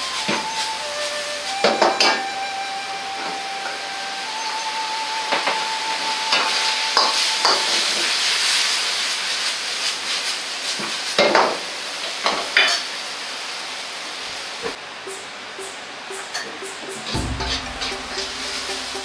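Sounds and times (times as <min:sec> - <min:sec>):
noodles sizzling in a wok: 0:00.0 - 0:02.4, 0:03.3 - 0:19.0
ladle knocking and scraping wok: 0:15.1 - 0:19.0.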